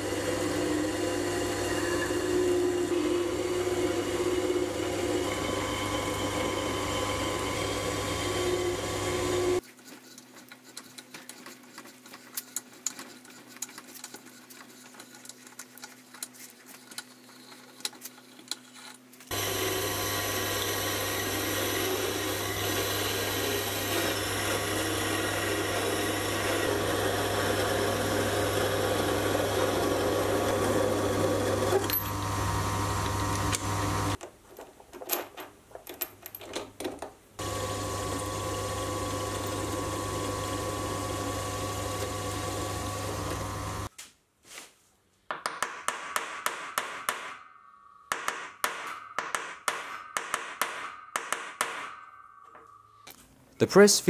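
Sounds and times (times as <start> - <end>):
metal lathe running: 19.3 - 34.2, 37.4 - 43.9.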